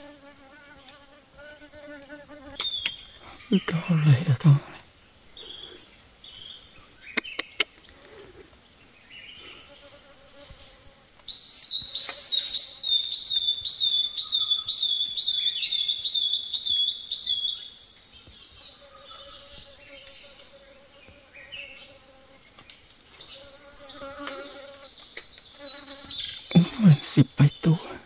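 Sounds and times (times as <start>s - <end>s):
loud whistled call: 11.3s - 17.6s.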